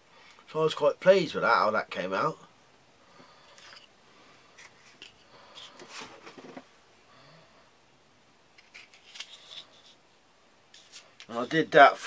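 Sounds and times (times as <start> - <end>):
plastic sheath rubbing and clicking: 8.6 - 10.0.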